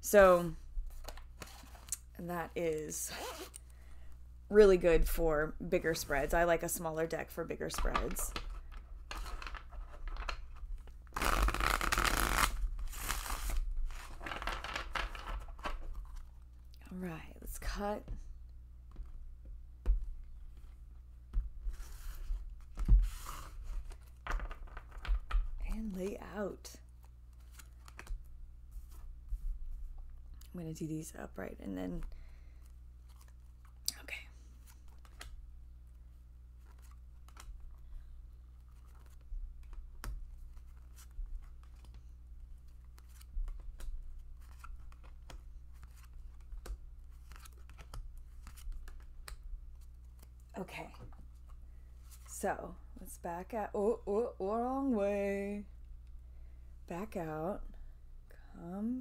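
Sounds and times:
cards rustling: 7.7 - 16.6, 36.6 - 50.5.

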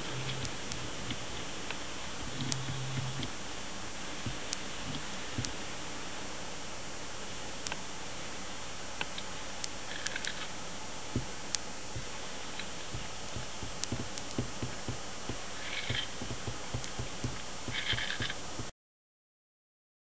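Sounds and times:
steady hiss: 0.0 - 18.7
scattered clicks: 0.1 - 3.4, 4.3 - 5.6, 11.2 - 18.7
soft low thumps: 2.2 - 3.4, 4.2 - 5.6, 11.2 - 12.2, 12.8 - 18.7.

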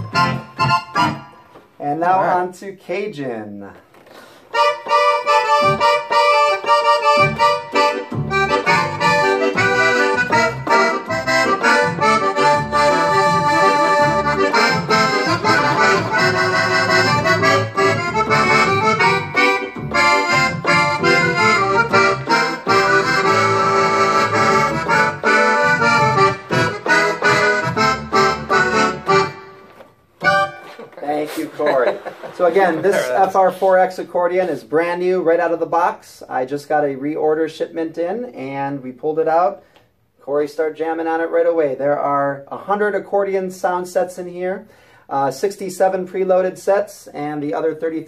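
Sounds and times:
accordion playing a tune: 0.0 - 1.6, 4.5 - 31.8.

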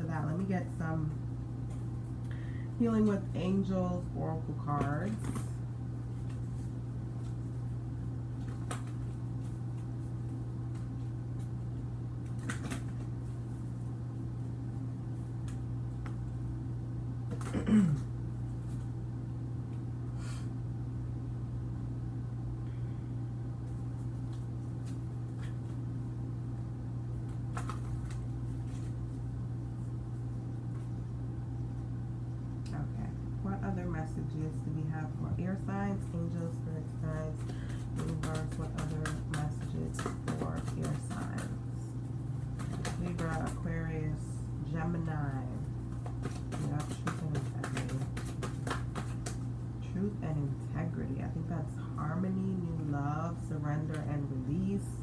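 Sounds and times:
low electrical hum: 0.0 - 55.0
cards being handled: 8.4 - 11.5, 12.2 - 13.4, 23.7 - 25.8, 27.2 - 29.2, 37.4 - 41.6, 42.4 - 43.6, 45.8 - 49.6.

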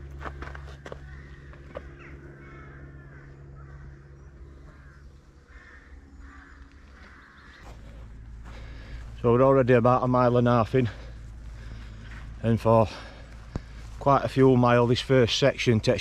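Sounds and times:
crows cawing: 0.0 - 9.2, 10.5 - 14.0
footsteps on path: 0.0 - 16.0.

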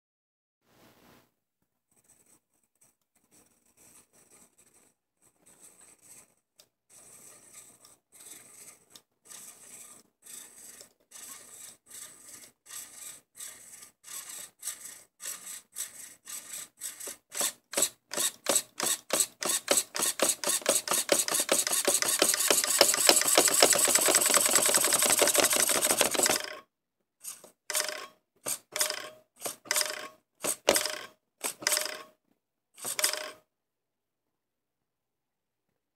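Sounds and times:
servo motor whirring: 14.2 - 26.5.

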